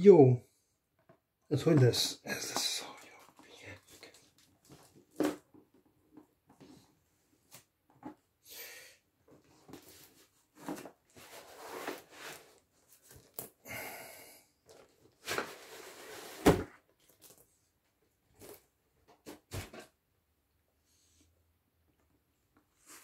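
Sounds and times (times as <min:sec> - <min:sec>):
cardboard box scraping and rustling: 0:09.8 - 0:12.6, 0:15.3 - 0:16.7.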